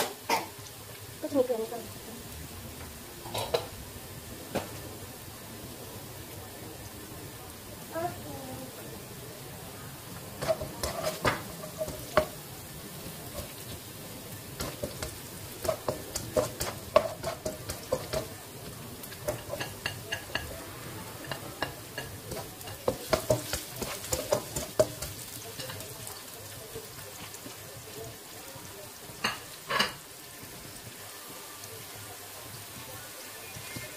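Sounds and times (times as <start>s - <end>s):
vegetables sizzling in a wok: 0.0s - 33.9s
utensil scraping and clicking on pan: 10.4s - 12.3s, 14.6s - 20.5s, 21.2s - 25.8s.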